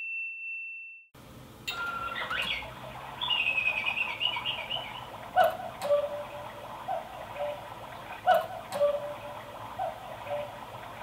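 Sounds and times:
small birds chirping: 2.1 - 7.6.

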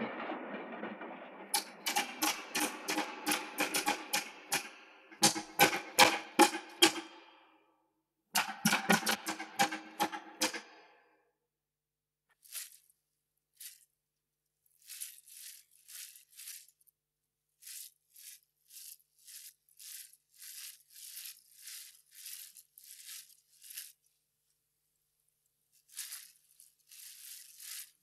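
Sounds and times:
dry leaves rustling: 12.4 - 12.8, 14.8 - 16.9, 17.6 - 24.0, 25.9 - 28.0.

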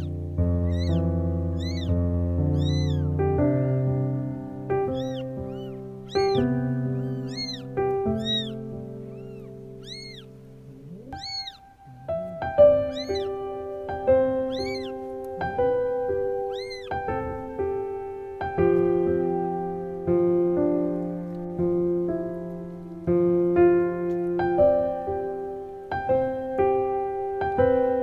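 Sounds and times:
kittens mewing: 0.0 - 3.9, 4.8 - 17.6
soft piano music: 0.0 - 28.0.

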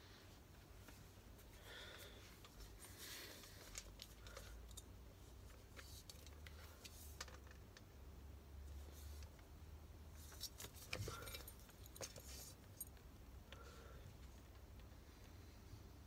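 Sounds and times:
helmet handling clicks and rustles: 2.3 - 8.0, 10.1 - 13.6.

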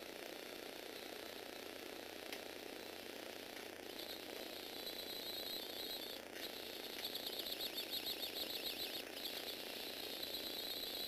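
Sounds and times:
electric motor whine: 3.6 - 11.0.

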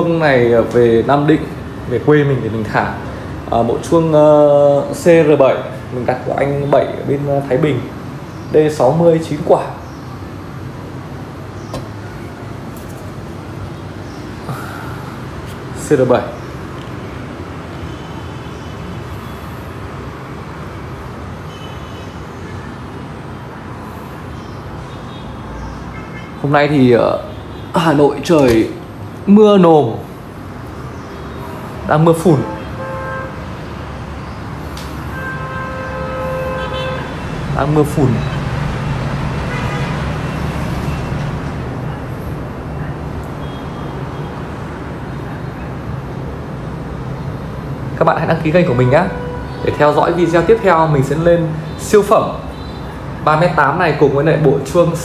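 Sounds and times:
city road traffic rumble: 0.0 - 55.0
steady background hum and hiss: 0.0 - 55.0.

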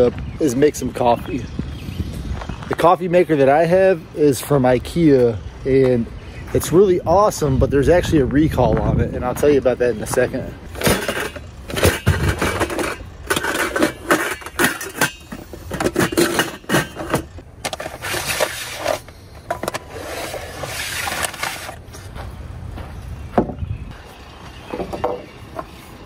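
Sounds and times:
metal cookware clattering: 10.8 - 17.4.

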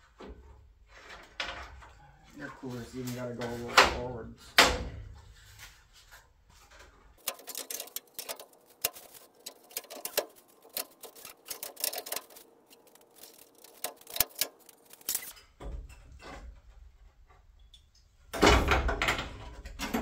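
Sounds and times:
metal grille clicks and rattles: 7.2 - 16.9.

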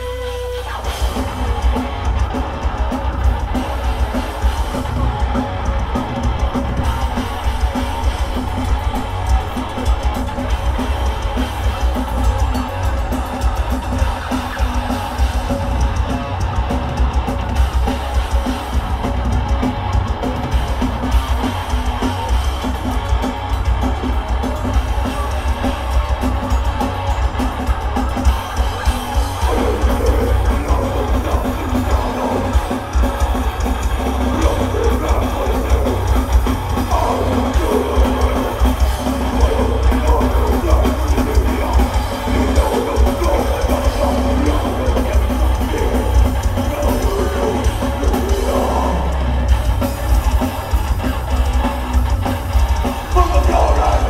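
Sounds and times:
death metal band playing live: 0.0 - 54.0.

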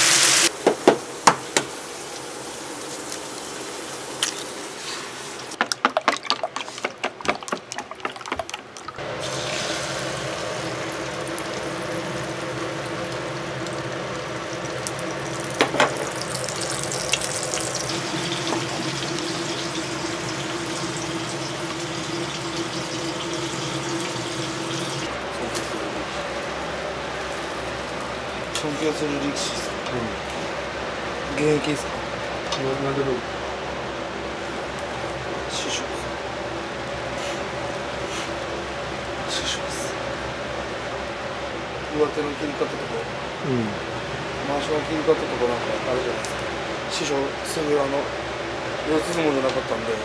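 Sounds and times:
utensils and dishes clattering: 5.6 - 9.0
tap water running into sink: 5.6 - 12.3, 13.1 - 25.1.

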